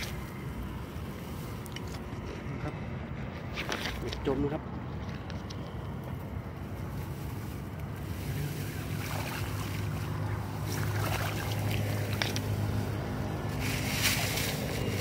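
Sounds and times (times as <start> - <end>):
rice plants rustling: 6.2 - 15.0
water sloshing from wading: 8.1 - 14.7.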